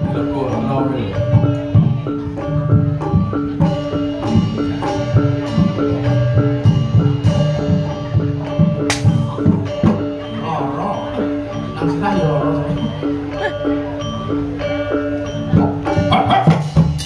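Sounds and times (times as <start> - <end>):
gamelan metallophone melody: 0.0 - 17.0
drum strokes: 1.1 - 10.3
sharp crack: 8.9 - 9.2.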